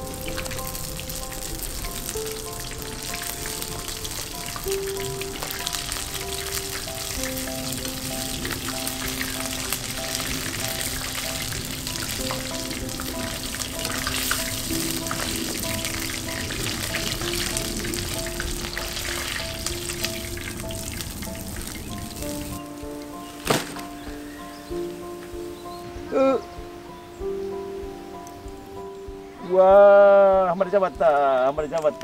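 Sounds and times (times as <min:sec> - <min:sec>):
fish sizzling in hot oil: 0:00.0 - 0:24.4
slow background music: 0:00.0 - 0:32.0.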